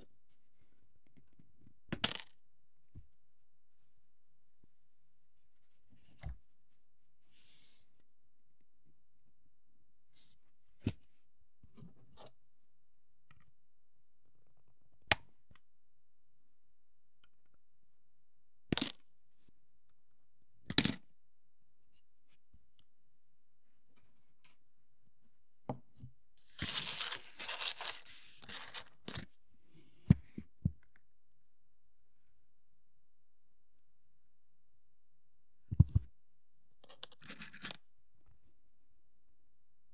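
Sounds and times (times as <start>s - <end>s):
rustling: 26.4s - 29.1s.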